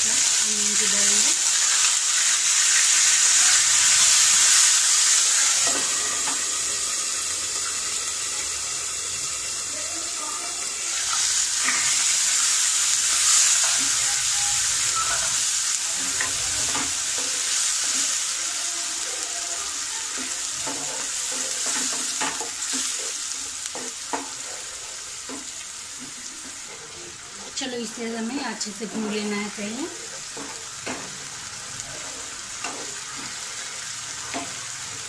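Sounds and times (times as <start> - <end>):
onion paste sizzling in hot oil: 0.0 - 35.0
spatula scraping a pan: 11.0 - 18.2, 20.0 - 27.5, 28.7 - 31.3, 31.9 - 35.0.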